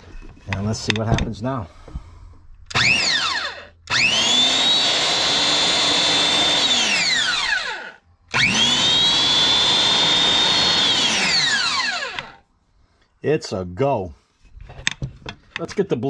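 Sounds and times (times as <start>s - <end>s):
circular saw motor whining: 2.7s - 12.4s.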